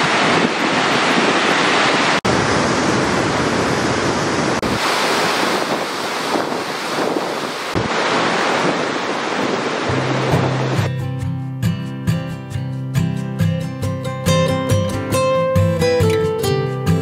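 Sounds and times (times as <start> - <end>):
rushing floodwater: 0.0 - 10.9
wind buffeting microphone: 0.0 - 10.9.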